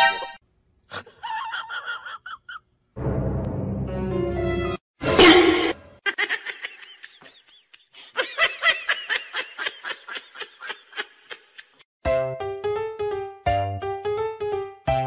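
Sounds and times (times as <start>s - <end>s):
keyboard music: 3.0s - 4.8s, 12.0s - 15.0s.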